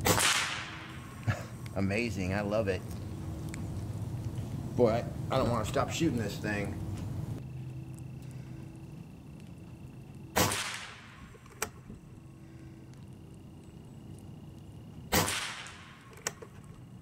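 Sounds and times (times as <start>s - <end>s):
air rifle shot cracking: 0.0s - 1.3s, 10.4s - 11.2s, 15.1s - 16.1s.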